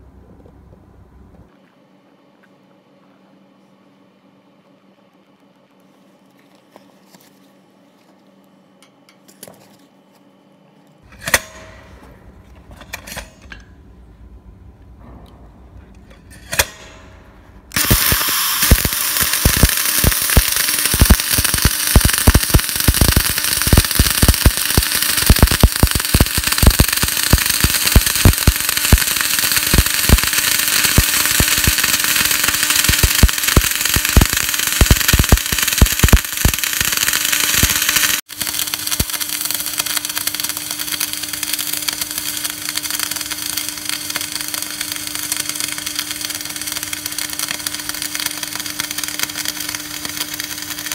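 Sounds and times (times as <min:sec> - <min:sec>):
steady low hum: 0:00.0 - 0:50.9
welding arc crackling: 0:16.3 - 0:50.9.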